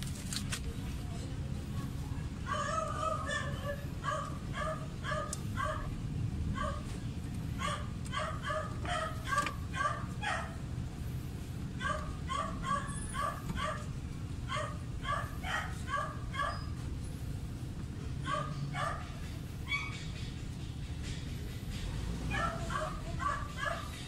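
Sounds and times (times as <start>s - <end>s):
steady low hum: 0.0s - 24.0s
dog barking: 2.5s - 6.0s, 6.6s - 6.9s, 7.6s - 10.6s, 11.8s - 13.9s, 14.5s - 16.8s, 18.2s - 20.0s, 22.3s - 24.0s.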